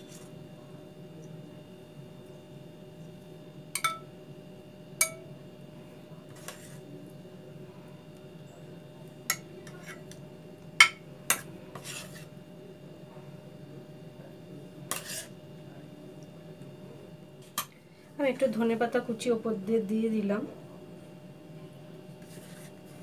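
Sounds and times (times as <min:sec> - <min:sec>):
steady low hum: 0:00.0 - 0:23.0
metal utensil clinking on dishes: 0:03.8 - 0:04.1.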